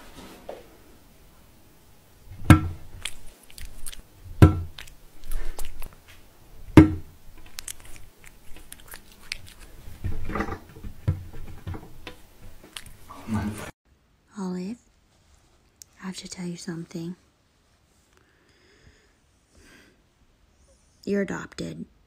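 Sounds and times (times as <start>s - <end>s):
cat chewing: 2.8s - 6.0s, 7.2s - 10.2s, 12.5s - 13.1s.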